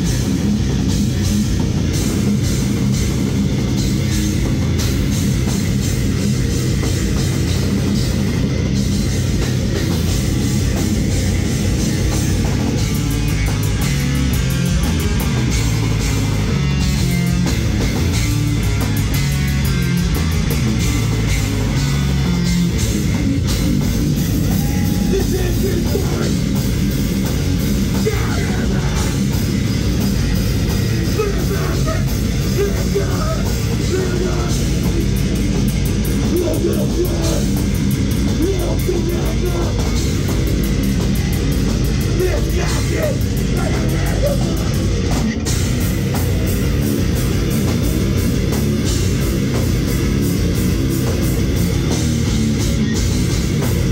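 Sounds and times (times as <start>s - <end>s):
distorted electric guitar: 0.0s - 53.9s
fast drums: 0.0s - 53.9s
person shouting into microphone: 24.4s - 26.4s, 27.9s - 29.2s, 31.0s - 34.6s, 36.2s - 37.6s, 38.4s - 39.9s, 42.1s - 44.8s.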